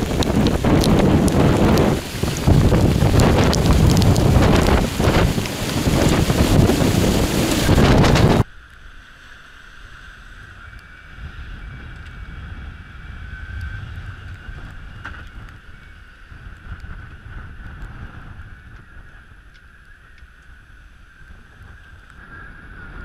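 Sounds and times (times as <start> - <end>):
wind buffeting microphone: 0.0 - 8.5, 10.5 - 23.0
faint steady whine: 0.0 - 23.0
wind and breaking seas: 0.0 - 23.0.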